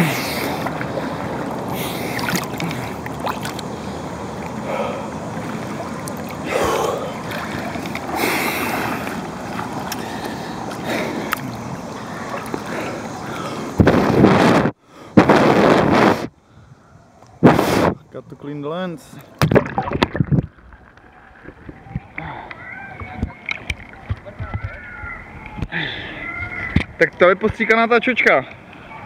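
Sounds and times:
pool water lapping and sloshing: 0.0 - 14.2, 18.4 - 29.0
water splashes: 0.0 - 14.7, 19.0 - 29.0
breathy blowing on microphone: 9.9 - 18.1.

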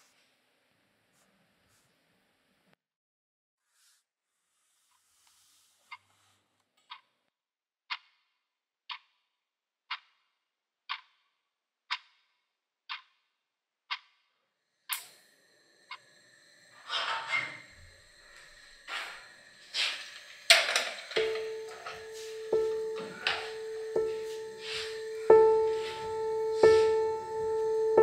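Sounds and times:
wall clock ticking: 7.9 - 8.2, 8.9 - 9.1, 9.9 - 10.2, 10.9 - 11.3, 11.9 - 12.3, 12.9 - 13.2, 13.9 - 14.3, 20.4 - 28.0
kitchen room noise: 14.9 - 28.0
clattering: 19.8 - 22.0.

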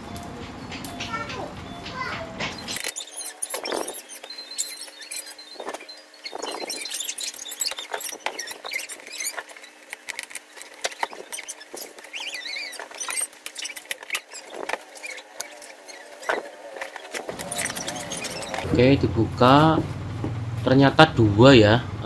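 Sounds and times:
brief squeak: 1.0 - 9.8, 10.8 - 18.8.

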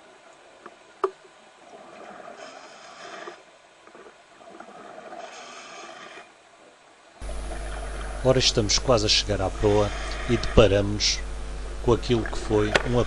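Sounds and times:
rushing exhaled bubbles: 7.2 - 10.8.

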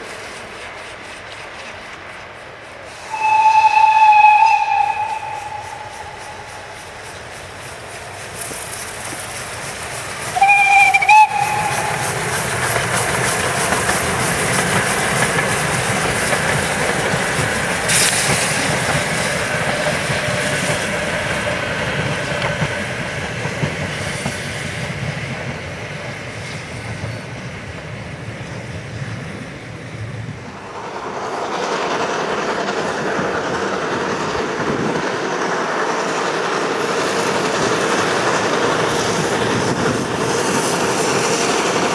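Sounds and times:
steam locomotive working hard: 0.0 - 41.9
train rumble and rail clatter: 0.0 - 41.9
steam whistle blast: 3.0 - 6.6, 10.3 - 12.2.

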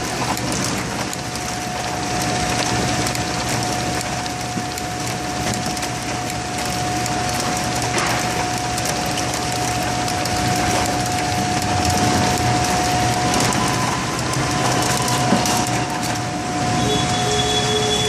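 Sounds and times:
steady machine whine: 0.0 - 18.0
machinery steady tones: 1.3 - 18.0.

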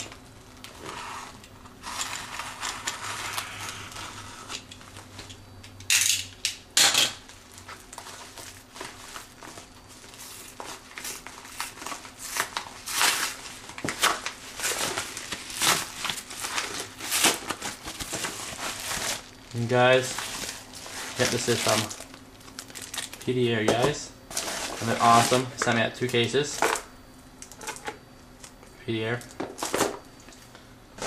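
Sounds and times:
envelope crinkling and rustling: 7.4 - 26.2
knife slitting paper envelope: 8.0 - 22.1.

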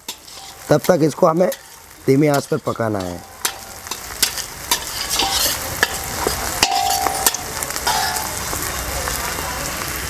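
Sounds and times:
spoon clinking against pan: 0.0 - 8.4
spoon scraping pan: 0.0 - 8.6
food sizzling in oil: 0.0 - 10.0.

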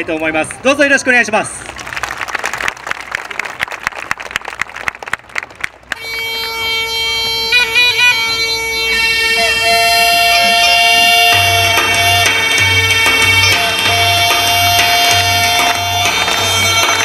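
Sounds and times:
audience clapping: 1.6 - 6.2, 11.0 - 17.0
drone with reedy melody: 5.9 - 17.0.

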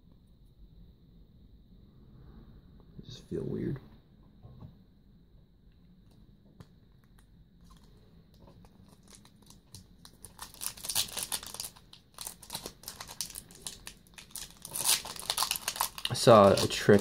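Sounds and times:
foil wrapper crinkling: 8.6 - 17.0.

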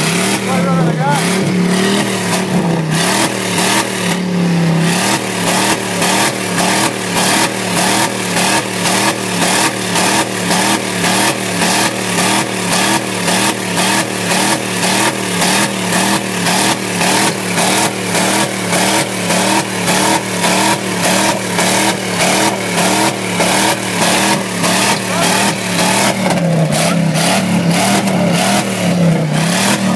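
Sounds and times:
engine bouncing off rev limiter: 0.0 - 29.9.

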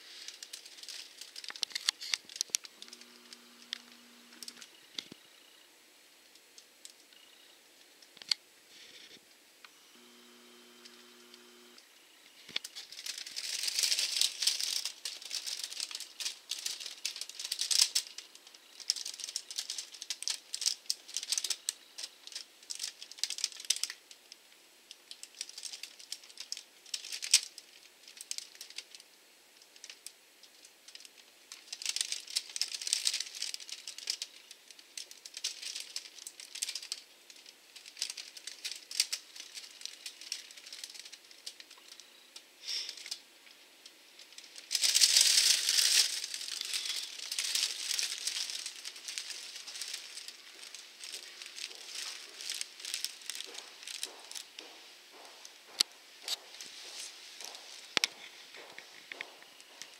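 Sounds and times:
dense clicking and rattling: 0.2 - 4.7, 12.5 - 24.0, 30.9 - 34.3, 35.0 - 41.8, 44.2 - 54.6.

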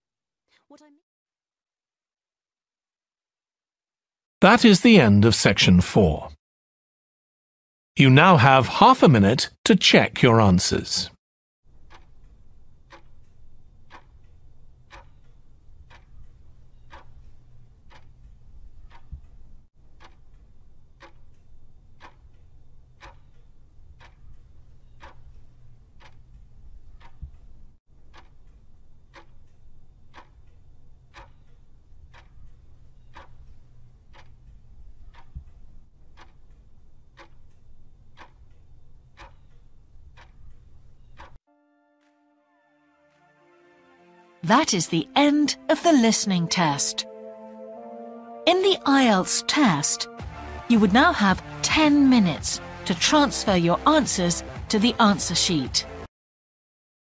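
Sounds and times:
clock ticking: 11.7 - 41.4, 44.4 - 47.1, 48.5 - 56.1.

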